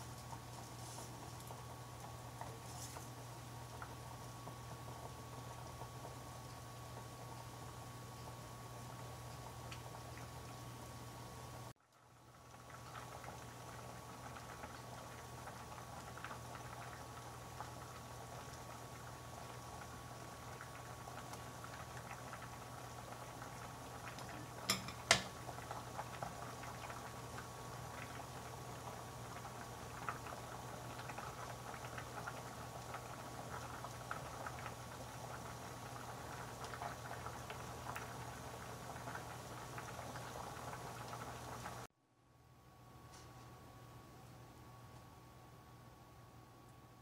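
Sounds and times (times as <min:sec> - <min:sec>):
pot of water boiling: 0:00.0 - 0:42.0
utensil knocking pot: 0:24.6 - 0:25.4.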